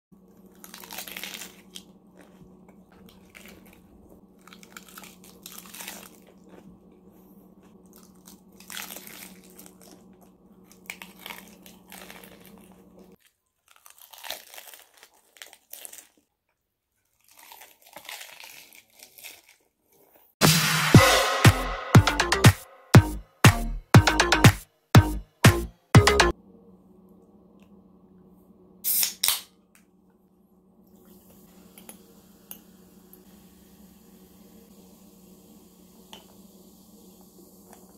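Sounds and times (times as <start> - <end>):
lettuce leaves crinkling: 0.2 - 6.7, 7.9 - 16.3, 17.0 - 19.7
crunching and wet chewing: 0.2 - 20.1.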